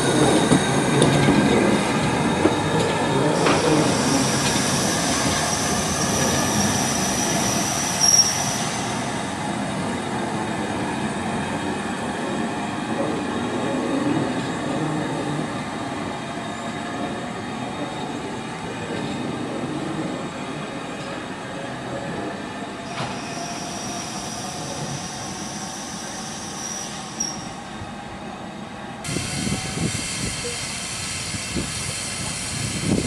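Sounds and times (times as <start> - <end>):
train wheels rumbling on rails: 0.0 - 27.6, 29.0 - 33.0
wheel flange squeal: 2.1 - 8.9
steam hissing: 2.6 - 9.1, 29.1 - 33.0.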